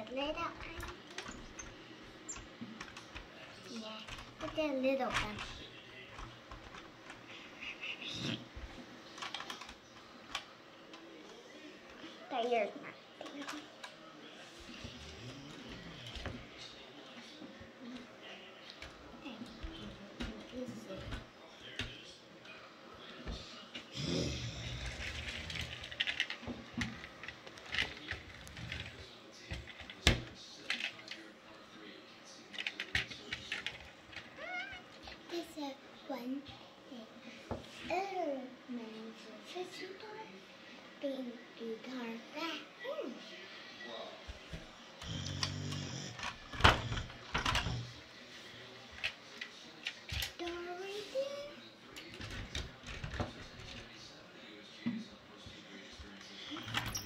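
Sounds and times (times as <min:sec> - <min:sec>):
toy car rolling rumble: 0:24.3 - 0:27.0.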